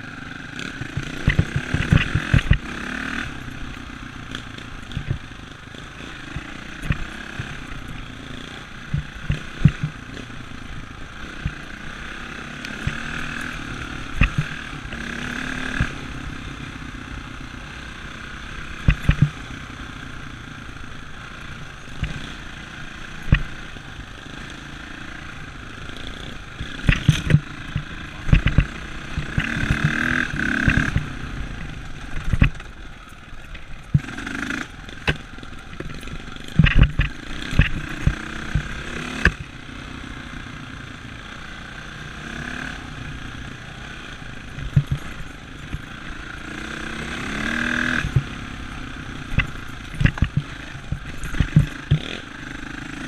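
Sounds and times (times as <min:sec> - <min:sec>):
dirt bike engine running: 0:00.0 - 0:53.0
sharp knocks and thumps: 0:00.8 - 0:02.6, 0:08.9 - 0:10.0, 0:14.2 - 0:14.6, 0:18.9 - 0:19.4, 0:26.6 - 0:31.1, 0:32.2 - 0:32.7, 0:35.0 - 0:39.4, 0:44.6 - 0:45.9, 0:49.3 - 0:52.2.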